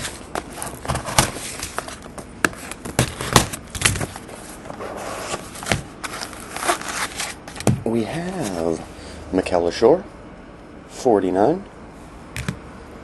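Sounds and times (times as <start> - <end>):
cardboard box clicks and knocks: 0.0 - 4.2.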